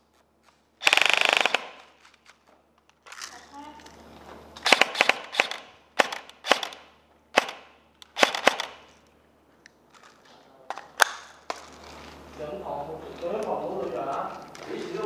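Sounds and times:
airsoft rifle shots: 0:00.8 - 0:02.0, 0:04.6 - 0:08.9.

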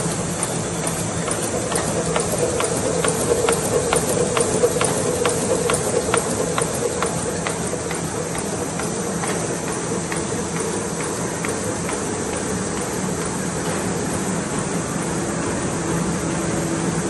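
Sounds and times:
sharp machine clicks: 0:00.0 - 0:14.2
printing press mechanical hum: 0:00.0 - 0:17.0.

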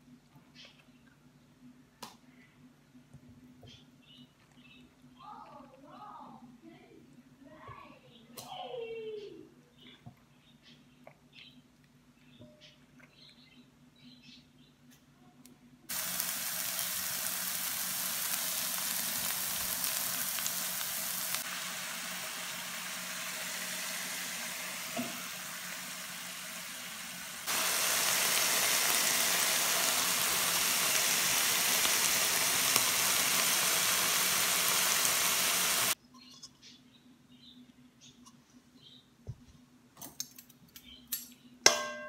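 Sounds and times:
meat sizzling in a pan: 0:15.9 - 0:36.0.

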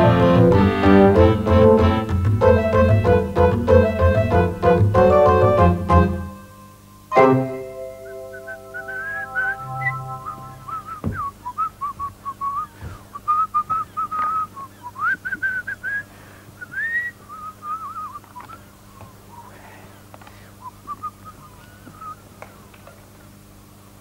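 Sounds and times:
man whistling a tune: 0:07.8 - 0:19.4, 0:20.6 - 0:22.2.

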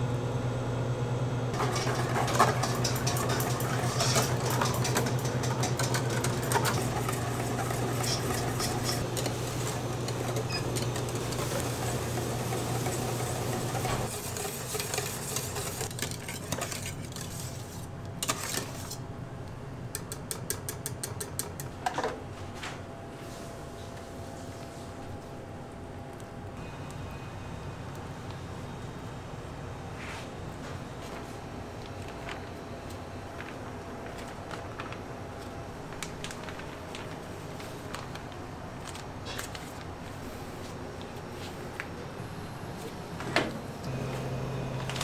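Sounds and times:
low machine hum: 0:00.0 - 0:18.2, 0:21.7 - 0:45.0
utensils and pans clinking: 0:01.6 - 0:17.5.

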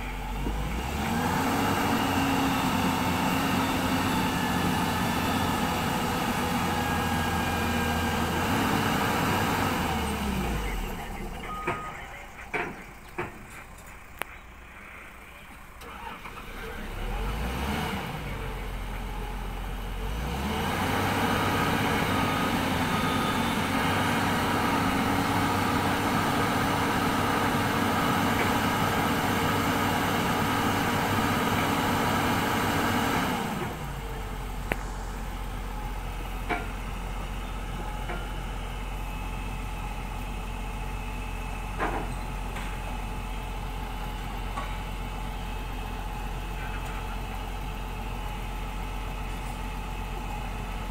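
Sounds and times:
excavator diesel engine: 0:00.0 - 0:50.9.

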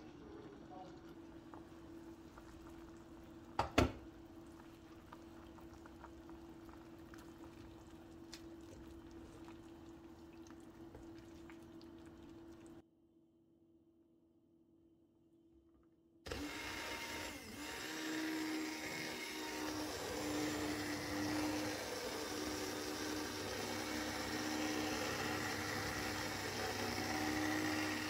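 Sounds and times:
soup bubbling in pot: 0:00.3 - 0:12.8.

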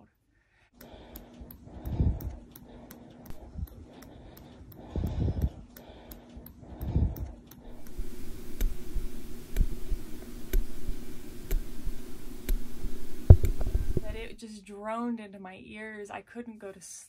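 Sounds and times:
mechanical heart valve ticking: 0:00.8 - 0:14.4
dull heartbeat thump: 0:06.8 - 0:14.3.

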